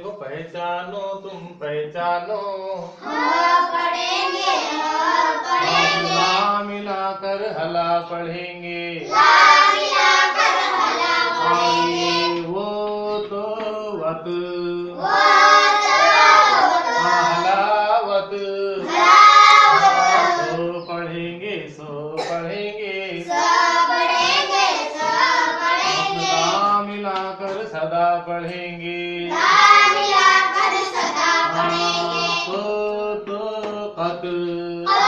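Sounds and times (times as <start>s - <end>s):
children singing together: 2.9s - 6.8s, 9.0s - 20.9s, 23.0s - 27.8s, 29.2s - 33.7s.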